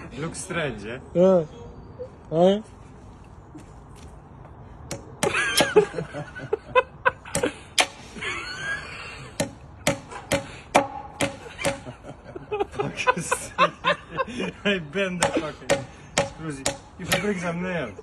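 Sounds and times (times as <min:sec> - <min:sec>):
person laughing: 0:05.2 - 0:09.4, 0:11.4 - 0:14.6
hammer knocking on nail: 0:09.4 - 0:11.9, 0:15.2 - 0:17.4.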